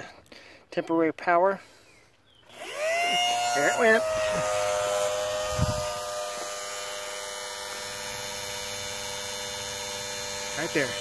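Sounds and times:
electric pump motor whining: 2.5s - 11.0s.

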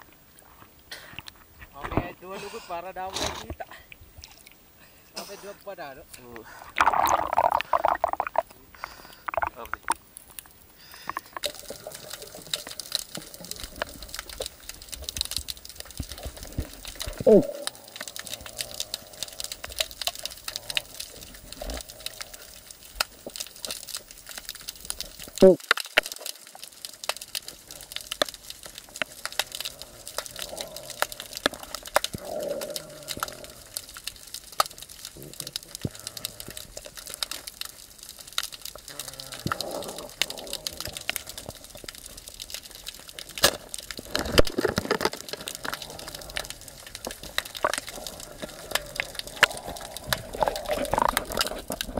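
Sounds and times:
underwater crackle of clicks: 6.1s - 51.9s
water sloshing: 6.4s - 10.4s.

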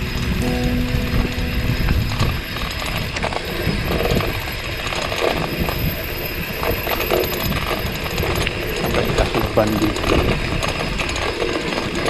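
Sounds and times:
bicycle drivetrain clicking: 3.2s - 12.0s.

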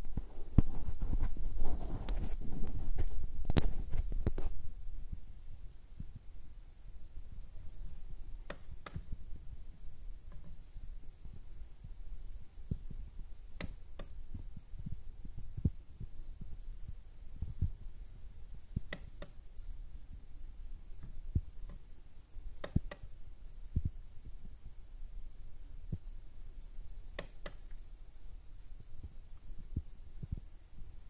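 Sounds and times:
soft low thumps: 0.0s - 31.0s.

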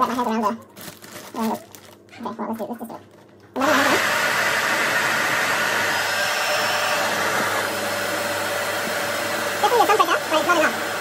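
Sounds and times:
hair dryer blowing: 3.6s - 11.0s.

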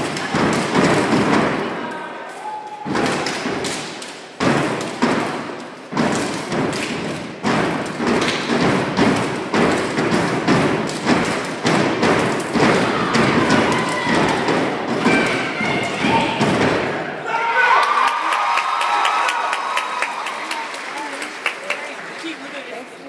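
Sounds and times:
hand claps: 17.8s - 22.6s.

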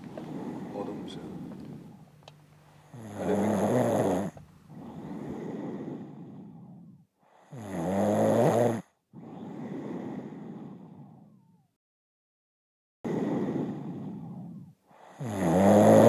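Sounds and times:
soft long breath: 0.0s - 2.1s, 4.6s - 7.6s, 9.2s - 11.5s, 13.1s - 15.3s
woman snoring: 0.0s - 2.1s, 2.8s - 11.7s, 13.1s - 16.0s.

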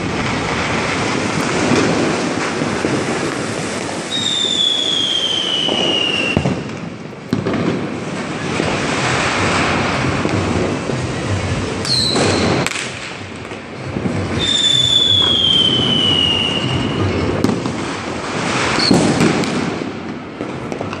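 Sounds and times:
falling firework whistle: 0.0s - 6.8s, 11.8s - 13.2s, 14.3s - 19.8s
firework whistle: 0.0s - 6.8s, 7.8s - 20.0s
fireworks crackling and hissing: 0.0s - 21.0s
sharp firecracker cracks: 11.8s - 13.7s, 18.5s - 21.0s.

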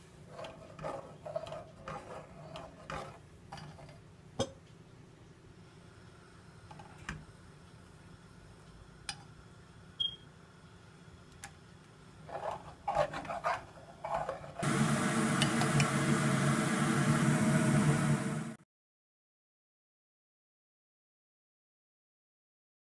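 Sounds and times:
mixture boiling and sizzling: 0.0s - 4.2s, 5.5s - 18.6s
metal spoon stirring in saucepan: 0.3s - 4.0s, 12.2s - 14.6s.

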